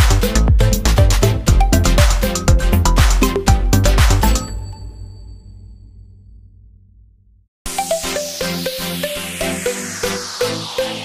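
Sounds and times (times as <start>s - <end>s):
electronic dance music: 0.0s - 4.6s, 7.7s - 11.0s.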